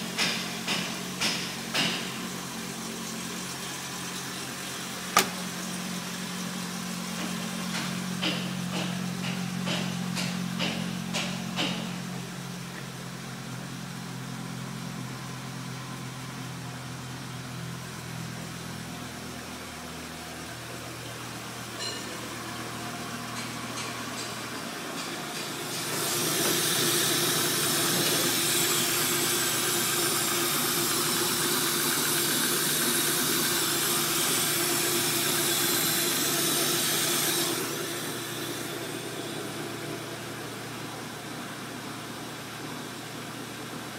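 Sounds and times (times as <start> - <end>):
van engine idling: 0.0 - 43.9
loud steady hiss: 25.6 - 43.8.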